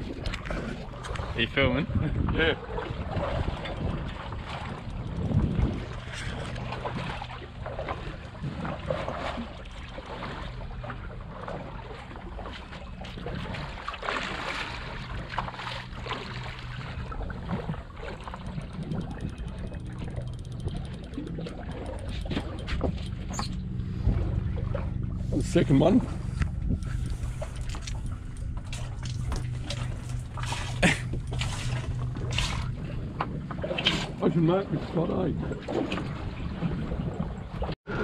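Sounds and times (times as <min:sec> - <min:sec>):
wind on microphone: 0:00.0 - 0:07.4, 0:16.9 - 0:38.0
outboard motor idling: 0:00.0 - 0:38.0
water sloshing against hull: 0:00.0 - 0:38.0.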